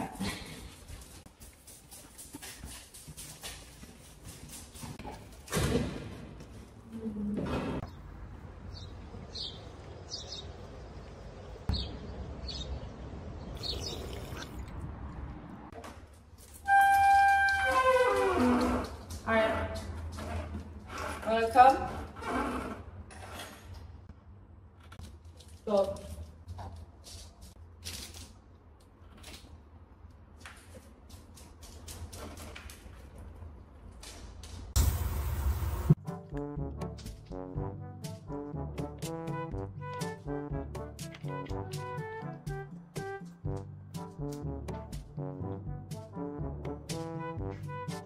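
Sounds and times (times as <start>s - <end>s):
bird chirping: 8.7s - 14.6s.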